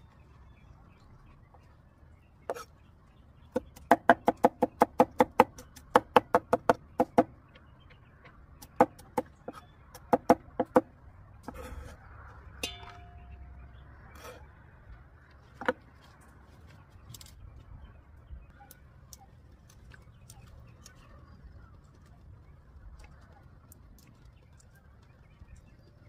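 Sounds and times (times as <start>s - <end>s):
cleaver chopping on wooden block: 3.5s - 7.3s, 10.0s - 10.9s.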